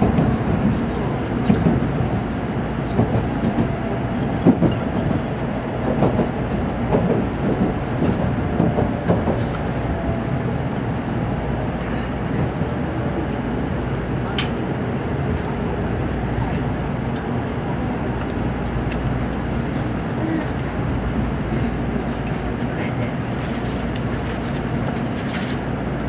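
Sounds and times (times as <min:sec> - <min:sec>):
wheels rumbling on rail: 0:00.0 - 0:26.0
track clicks and knocks: 0:02.9 - 0:05.2, 0:05.8 - 0:09.9.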